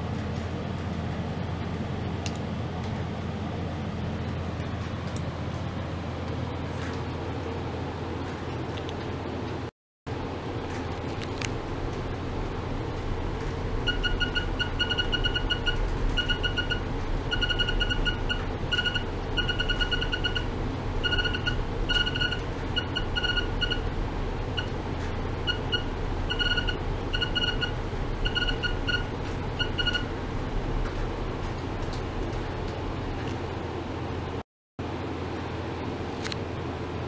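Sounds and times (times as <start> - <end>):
steady low hum: 0.0 - 37.0
rapid high-pitched beeps: 13.8 - 23.9, 24.5 - 30.1.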